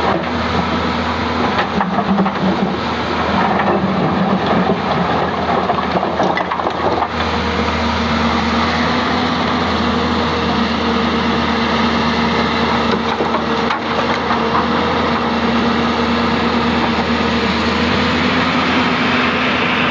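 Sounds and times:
excavator diesel engine running: 0.0s - 19.9s
rocks cracking and grinding: 1.4s - 7.7s.

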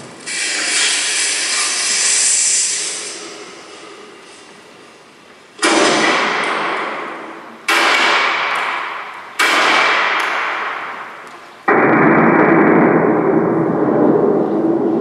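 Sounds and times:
loud bangs: 5.6s - 15.0s.

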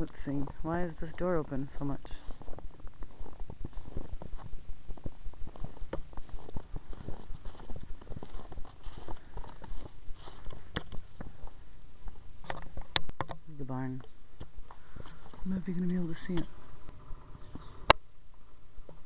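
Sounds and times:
footsteps on snow: 0.0s - 12.2s, 14.8s - 17.8s.

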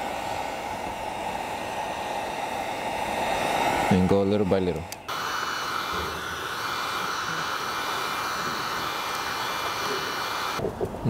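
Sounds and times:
heat gun blowing hiss: 0.0s - 10.6s.

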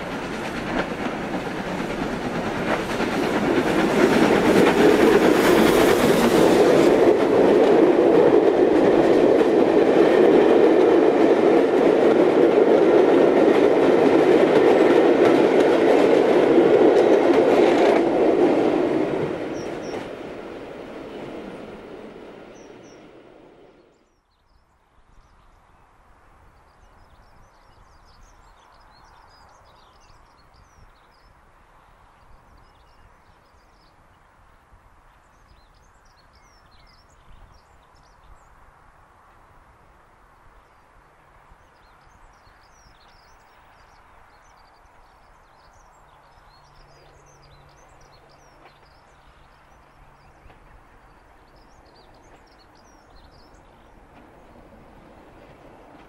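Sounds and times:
passing train running noise: 0.0s - 24.0s, 26.9s - 56.0s
distant diesel locomotive drone: 0.0s - 24.2s, 39.0s - 56.0s.

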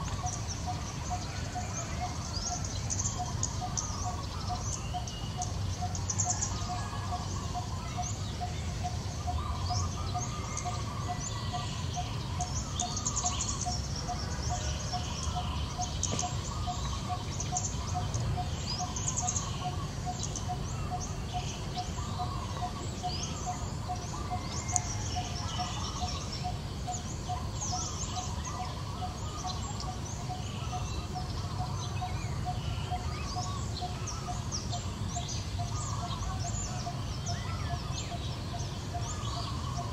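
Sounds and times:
birds chirping and calling: 0.0s - 39.9s
low background noise: 0.0s - 39.9s.

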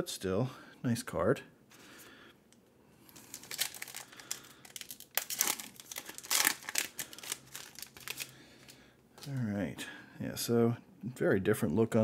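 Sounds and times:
foil wrapper crinkling: 3.1s - 9.3s.

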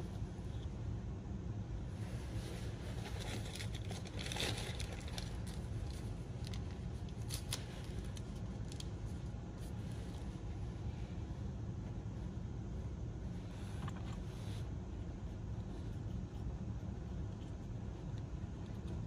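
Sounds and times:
low room hum: 0.0s - 19.0s
rustling: 2.1s - 10.3s.

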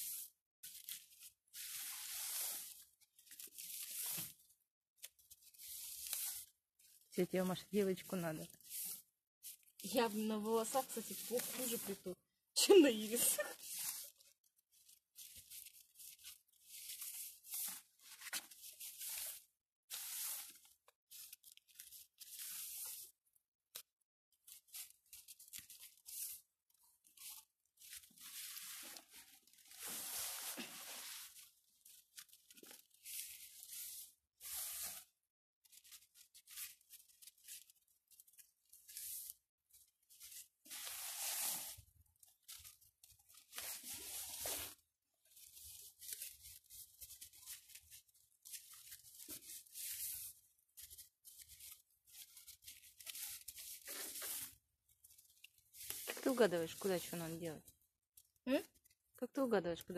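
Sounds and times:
leaves rustling and crackling: 0.0s - 4.4s, 5.0s - 23.1s, 27.1s - 35.1s, 40.1s - 57.3s.

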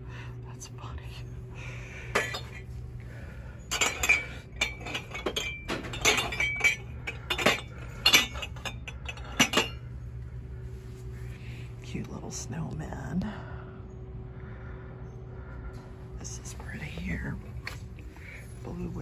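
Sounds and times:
ceramic dishes clinking: 2.1s - 2.7s, 3.6s - 9.9s.

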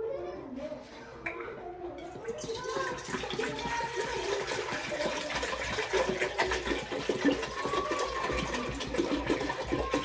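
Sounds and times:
water pouring into a steel pot: 2.0s - 10.0s.

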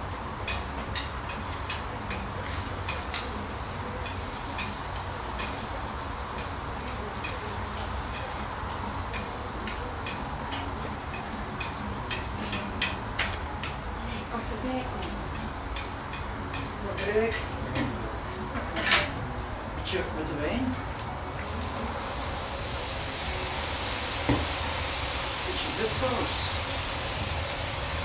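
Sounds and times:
low sizzle on a griddle: 0.0s - 28.0s
metal spatulas tapping and scraping: 9.1s - 13.8s.

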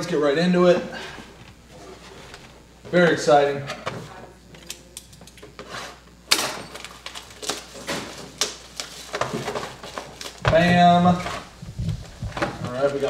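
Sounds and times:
plastic wrap crinkling: 6.7s - 13.0s.

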